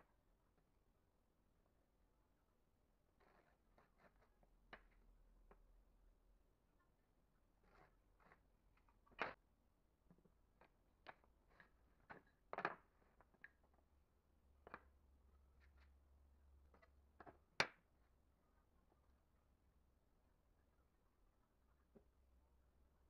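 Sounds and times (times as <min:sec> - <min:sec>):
wooden strips clacking on a table: 0:07.6 - 0:09.4, 0:10.1 - 0:13.7.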